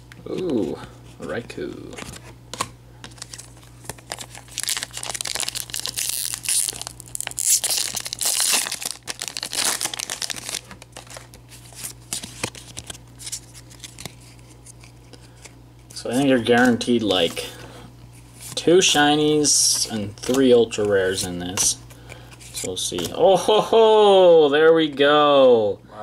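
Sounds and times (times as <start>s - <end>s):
foil wrapper crinkling and tearing: 3.1s - 15.4s
trading cards clicking and rustling: 18.8s - 23.2s.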